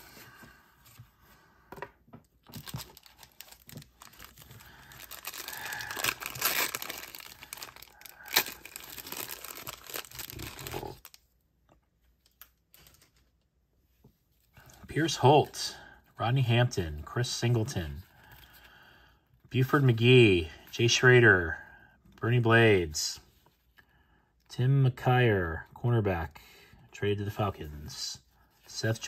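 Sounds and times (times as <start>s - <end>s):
foil wrapper tearing and crinkling: 2.6s - 11.2s.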